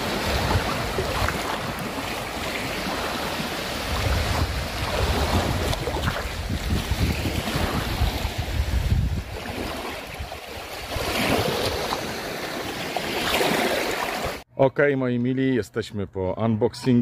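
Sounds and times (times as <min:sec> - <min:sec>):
wind rumbling on microphone: 0:00.0 - 0:11.8
sea waves washing in: 0:00.0 - 0:14.4.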